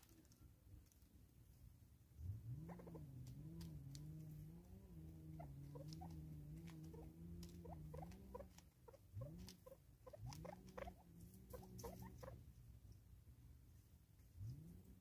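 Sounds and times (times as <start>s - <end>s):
faint low hum: 0.0s - 15.0s
birds pecking plastic feeder: 2.9s - 12.4s.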